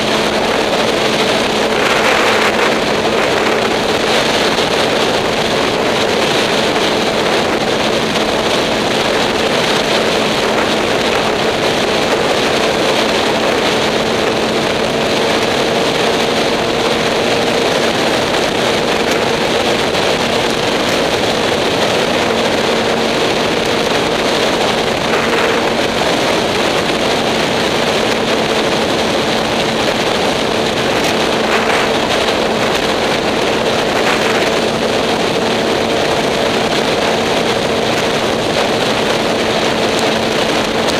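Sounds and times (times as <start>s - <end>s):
motorcycle engine cruising: 0.0s - 40.9s
wind rush on microphone: 0.0s - 40.9s.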